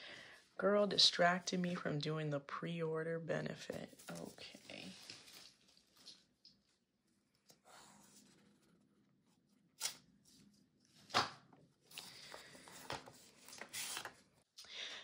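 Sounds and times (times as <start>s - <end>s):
paper rustling and crinkling: 3.8s - 6.8s, 12.0s - 14.3s
cards sliding out of envelope: 12.6s - 14.2s.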